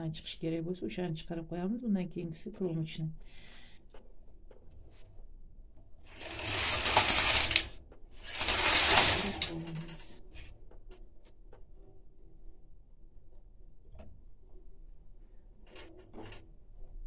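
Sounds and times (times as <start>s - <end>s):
knitting machine carriage clatter: 6.0s - 10.2s, 15.6s - 16.5s.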